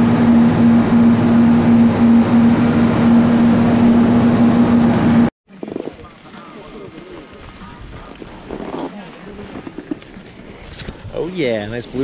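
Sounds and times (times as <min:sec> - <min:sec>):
chairlift machinery humming: 0:00.0 - 0:05.3.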